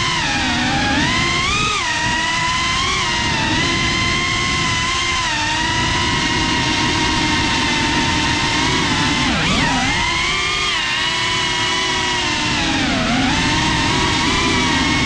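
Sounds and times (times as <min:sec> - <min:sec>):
drone motors whining: 0:00.0 - 0:15.0.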